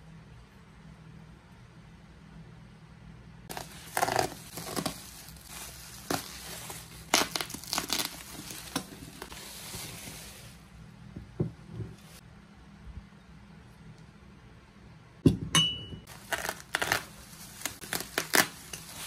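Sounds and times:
bubble wrap crinkling: 3.5s - 10.6s, 16.1s - 19.0s.

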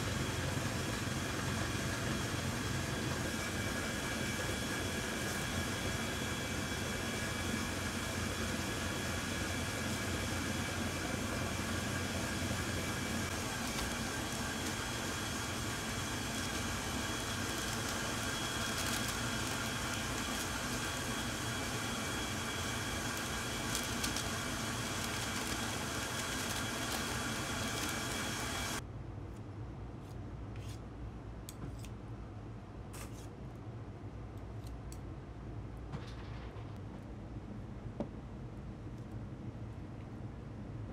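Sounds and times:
kitchen equipment hum: 0.0s - 32.0s.

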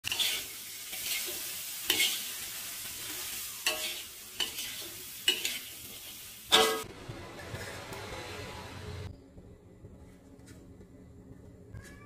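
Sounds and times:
food sizzling in a wok: 0.0s - 6.8s.

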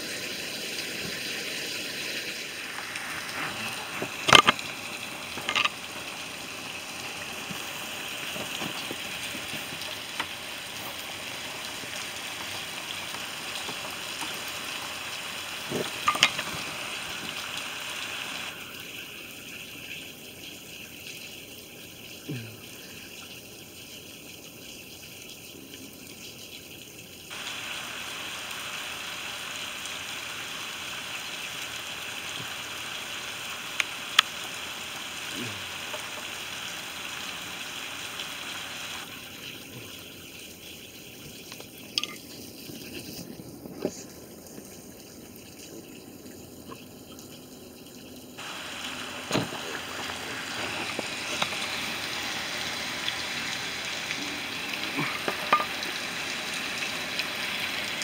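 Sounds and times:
heavy rain falling: 27.3s - 39.2s, 48.4s - 58.0s.

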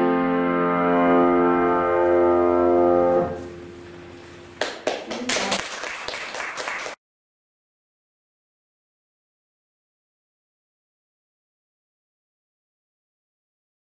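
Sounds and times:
keyboard chord: 0.0s - 3.8s
small group applauding: 4.6s - 7.0s.

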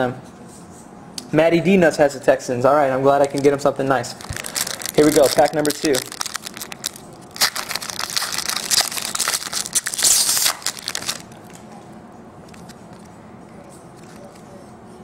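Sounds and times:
foil wrapper crinkling: 3.2s - 11.5s.

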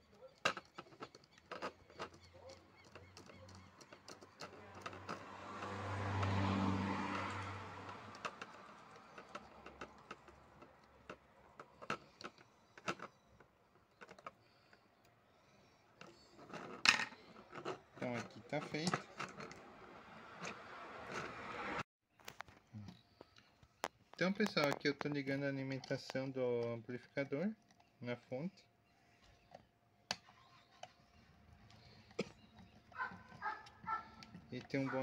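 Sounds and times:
passing vehicle hum: 3.7s - 11.6s, 17.6s - 21.8s.

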